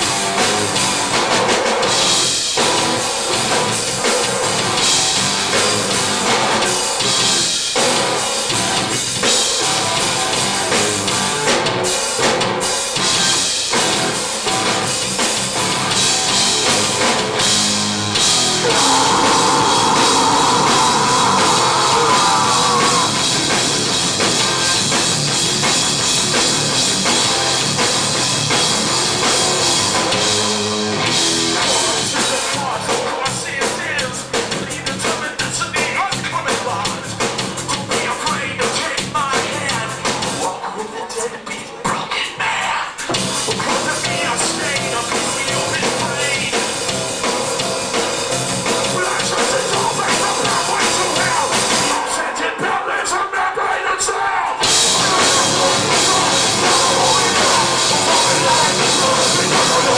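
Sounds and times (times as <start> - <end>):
drum kit: 0.0 - 40.6, 41.8 - 52.4, 54.5 - 59.9
heavy rock band playing live: 0.0 - 40.6, 42.9 - 52.9, 54.0 - 59.9.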